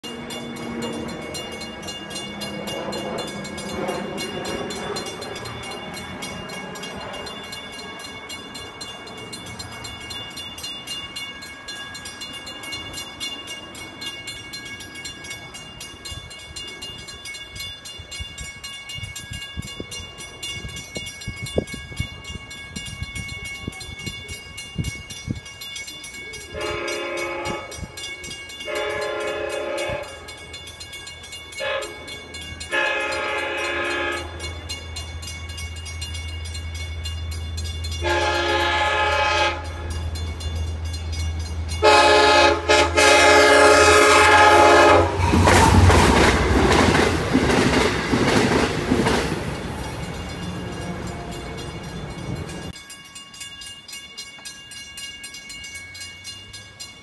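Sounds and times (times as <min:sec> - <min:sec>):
railroad crossing bells ringing: 0:00.0 - 0:57.0
train horn blasts: 0:26.5 - 0:28.0, 0:28.7 - 0:30.3, 0:31.6 - 0:32.1, 0:32.7 - 0:34.5, 0:38.0 - 0:40.0, 0:41.8 - 0:45.5.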